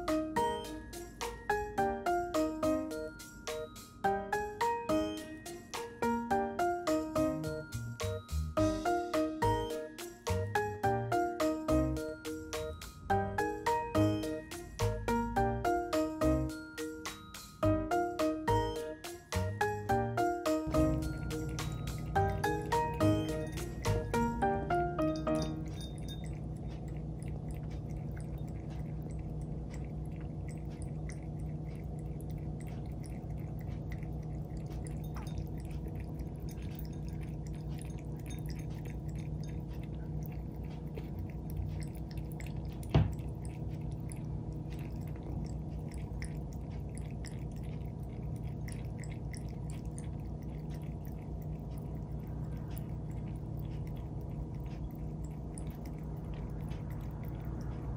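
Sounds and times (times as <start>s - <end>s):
steady low hum: 17.5s - 57.9s
cat lapping water: 19.0s - 57.9s.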